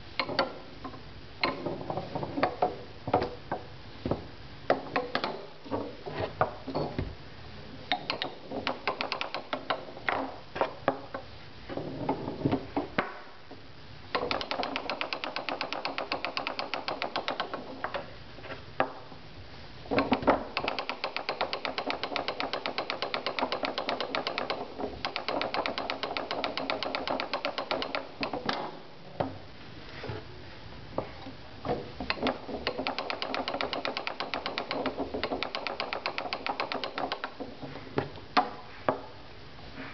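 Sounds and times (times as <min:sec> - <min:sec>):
foosball ball clacking: 0:07.9 - 0:11.1, 0:31.8 - 0:39.1
fast continuous clicking: 0:14.1 - 0:17.7, 0:20.0 - 0:28.4, 0:32.1 - 0:37.4.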